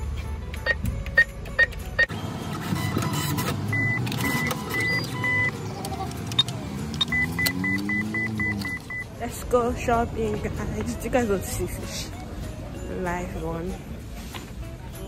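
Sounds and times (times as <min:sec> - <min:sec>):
button press beeps: 0:02.8 - 0:05.5, 0:06.4 - 0:09.0
short beeps: 0:02.8 - 0:05.5, 0:06.4 - 0:09.1.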